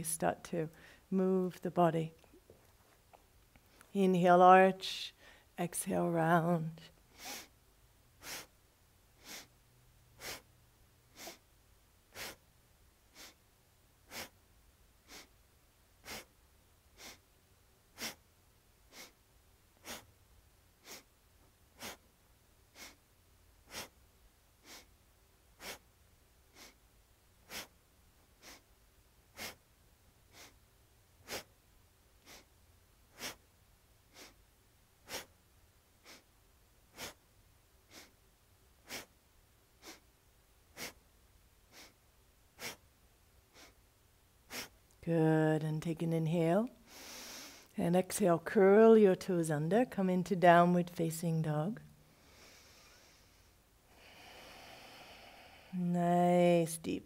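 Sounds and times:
forceful nose breaths: 16.0 - 16.4, 17.9 - 18.2, 19.8 - 20.2, 20.8 - 21.1, 21.7 - 22.1, 23.6 - 24.0, 25.6 - 25.9, 27.4 - 27.8, 28.4 - 28.7, 29.3 - 29.7, 31.2 - 31.6, 33.1 - 33.5, 35.0 - 35.4, 36.9 - 37.2, 42.6 - 42.8, 44.5 - 44.8, 46.9 - 47.7, 52.1 - 55.8.

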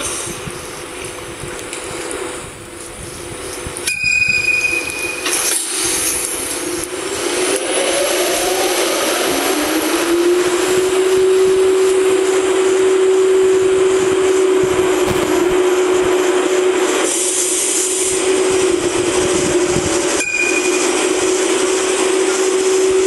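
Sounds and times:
hiss: 0.0 - 0.9, 5.3 - 9.9, 16.9 - 20.2
model train motor whine: 0.0 - 23.0
short high beep: 3.9 - 5.5, 20.2 - 21.2.

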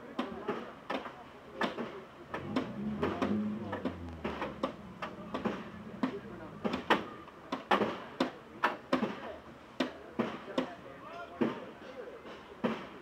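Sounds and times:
sharp knocks and clicks: 0.9 - 9.2.

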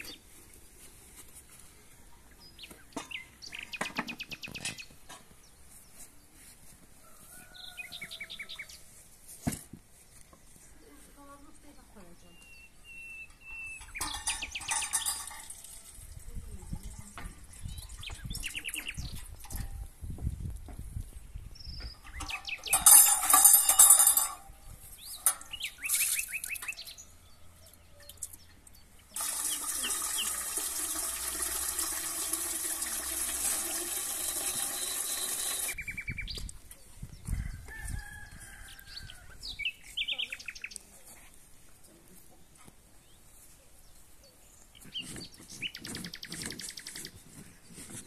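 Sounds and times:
small birds chirping: 1.7 - 9.0, 10.0 - 15.3, 16.2 - 19.7, 21.1 - 22.9, 24.8 - 30.4, 35.8 - 37.5, 38.7 - 48.0
tap water pouring into metal: 29.1 - 35.8.

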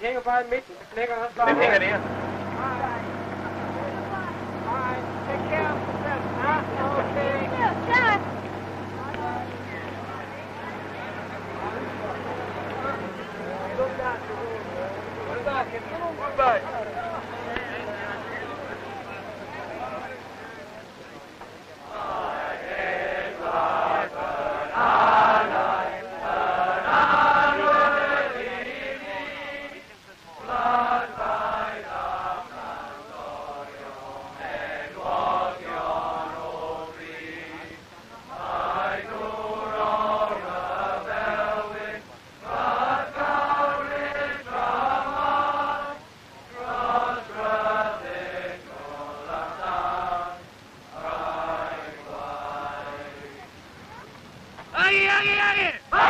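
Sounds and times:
group of voices singing a chant: 21.8 - 53.5.

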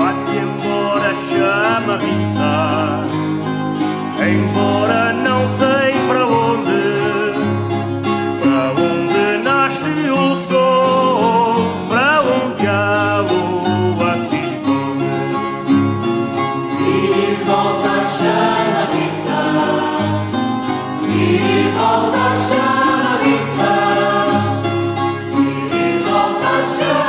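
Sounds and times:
guitar: 0.0 - 27.0
voices singing: 4.2 - 7.4, 16.6 - 27.0.

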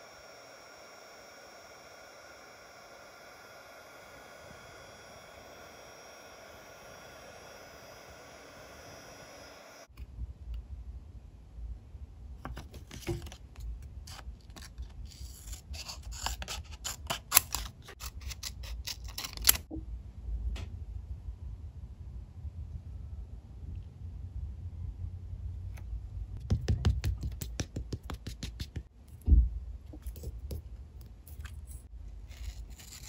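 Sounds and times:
heat embossing tool whirring: 0.0 - 9.9, 14.1 - 19.7, 30.0 - 33.0
scissors snipping thick paper: 14.1 - 19.6.

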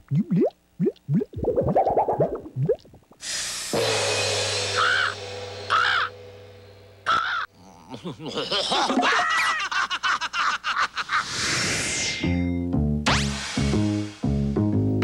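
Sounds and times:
raspy hiss: 3.2 - 5.4
cartoon crow cawing: 4.8 - 6.1, 7.1 - 7.5.

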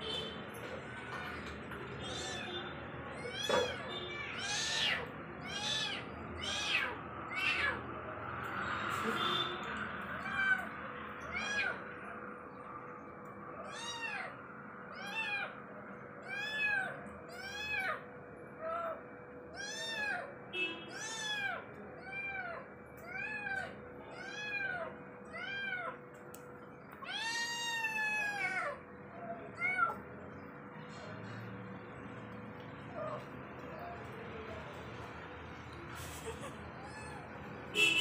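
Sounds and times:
kitten meowing: 3.1 - 7.8.

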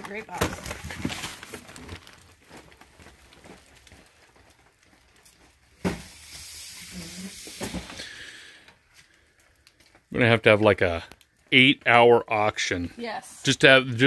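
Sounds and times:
rustling and handling noise: 0.0 - 12.0
hiss: 5.9 - 8.0.

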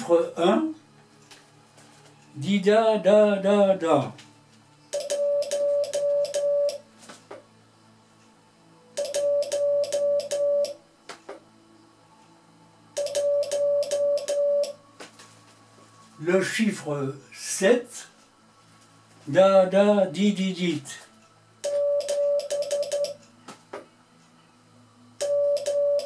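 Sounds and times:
morse code sidetone beeps: 4.9 - 6.8, 9.0 - 10.8, 13.0 - 14.8, 21.6 - 23.2, 25.2 - 26.0.

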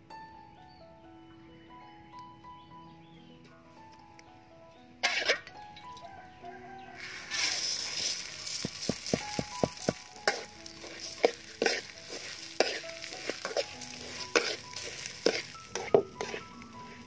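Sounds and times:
metal spatula scraping wok: 5.0 - 5.5, 7.0 - 17.0
rice grains rustling: 7.0 - 17.0.

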